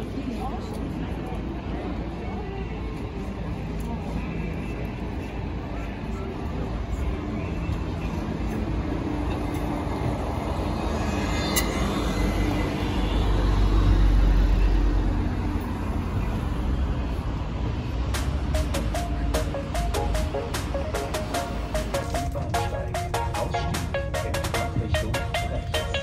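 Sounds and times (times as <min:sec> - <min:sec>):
passing vehicle rumble: 0:00.0 - 0:26.0
music: 0:18.1 - 0:26.0.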